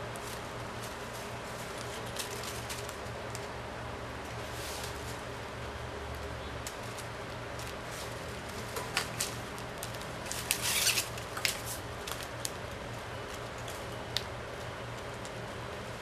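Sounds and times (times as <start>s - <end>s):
steady low hum: 0.0s - 16.0s
plastic straps clicking and rustling: 0.2s - 3.5s, 6.1s - 12.7s.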